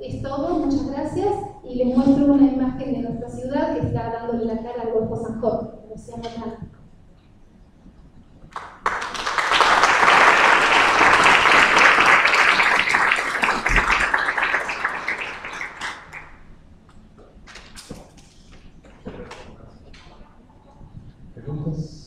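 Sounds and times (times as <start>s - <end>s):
audience applauding: 8.5s - 16.5s.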